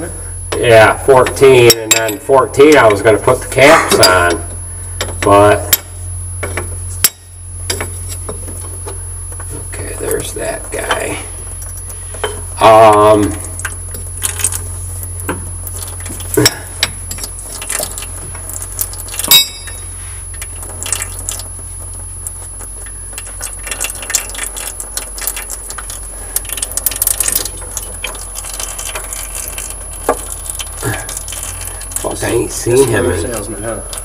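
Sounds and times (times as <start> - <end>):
faint high whine: 0.0 - 34.0
steady low hum: 0.0 - 34.0.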